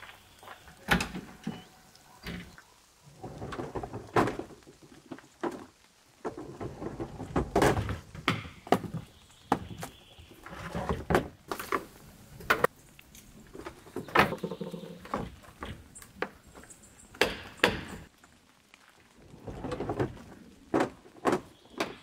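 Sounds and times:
scraping and rustling: 0.6s - 17.0s.

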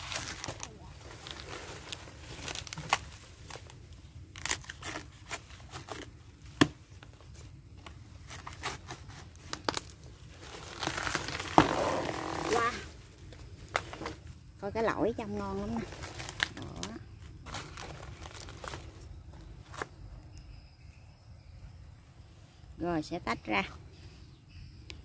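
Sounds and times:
plant stem cracking and tearing: 2.4s - 6.7s.

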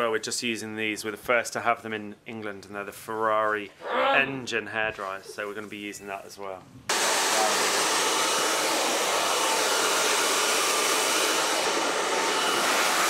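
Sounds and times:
hair dryer blowing: 6.9s - 13.0s.

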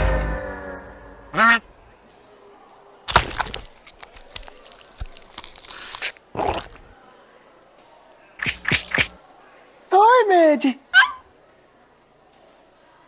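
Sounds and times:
cartoon bite crack: 3.1s - 6.9s, 8.4s - 9.2s
crunching and smacking chewing: 3.1s - 7.0s.

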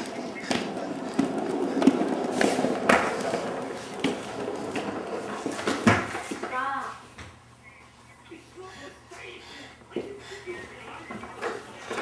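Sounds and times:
skateboard wheels rolling on wood: 0.0s - 6.9s, 9.9s - 12.0s.

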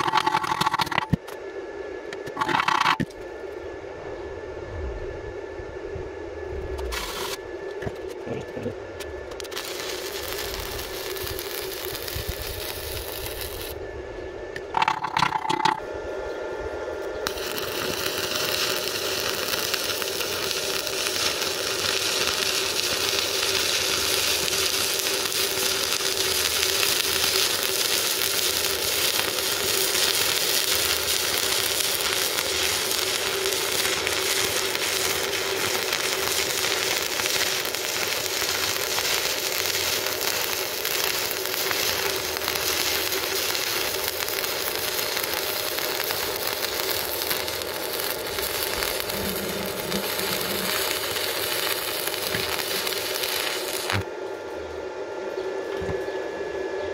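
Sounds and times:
welding arc crackling and sizzling: 0.0s - 1.4s, 2.2s - 3.1s, 6.8s - 8.4s, 9.0s - 13.8s, 14.5s - 15.8s, 17.2s - 54.1s
steady hum: 0.0s - 56.9s.

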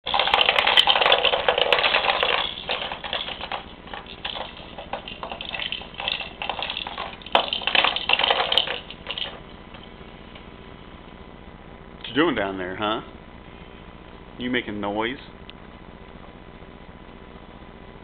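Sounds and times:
plastic toys rattling and clacking: 0.0s - 9.5s.

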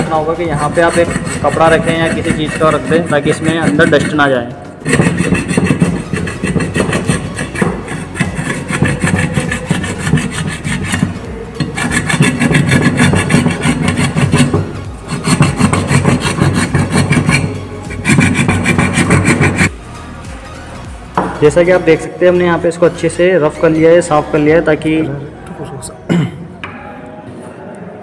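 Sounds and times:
metal file rasping on metal: 0.0s - 19.7s.

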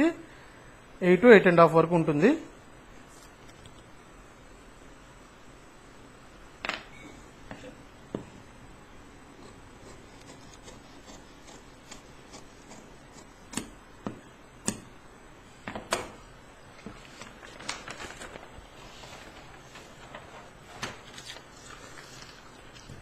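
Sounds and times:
paper pattern crackling: 16.7s - 23.0s.

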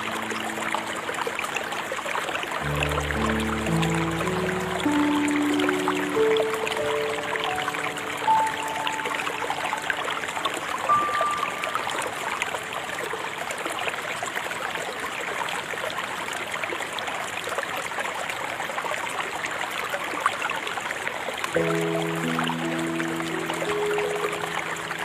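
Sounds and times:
soft sustained music chords: 0.0s - 13.2s, 21.6s - 25.0s
river water babbling: 0.0s - 25.0s.

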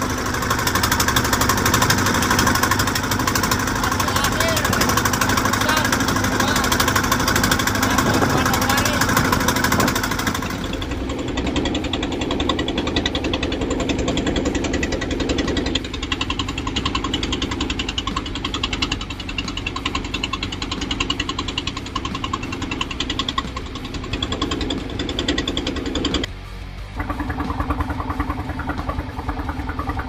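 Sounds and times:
engine running: 0.0s - 30.0s.

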